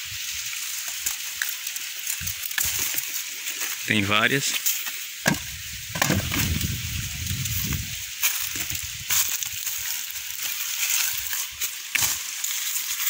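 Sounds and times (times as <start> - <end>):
constant high hiss: 0.0 - 13.0
dry leaves crackling and rustling: 0.0 - 13.0
branches snapping: 4.7 - 6.8, 8.2 - 13.0
low rumble: 5.5 - 7.9.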